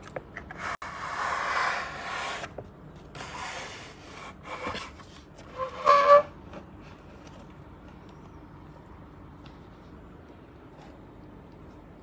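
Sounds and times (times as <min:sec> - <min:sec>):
cardboard squeak: 0:05.5 - 0:06.4.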